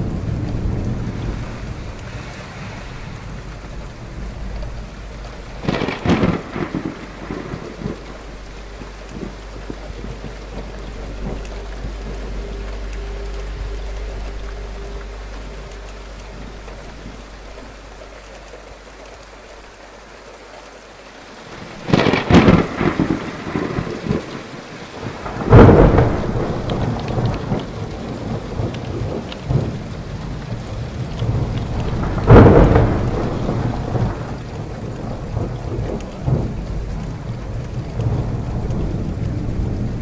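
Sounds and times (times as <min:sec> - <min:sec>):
thunderclaps: 0:00.0 - 0:19.8, 0:21.0 - 0:40.0
faint low hum: 0:00.0 - 0:24.5
steady rain: 0:00.0 - 0:40.0.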